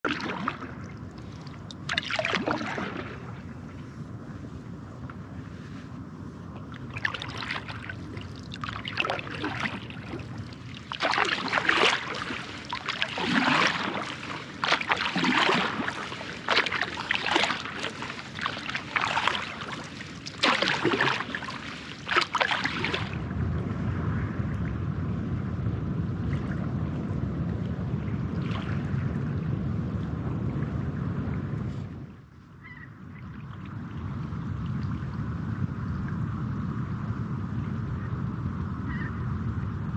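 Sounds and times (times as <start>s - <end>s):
paddle splashing through water: 0.0s - 3.8s, 6.7s - 23.2s.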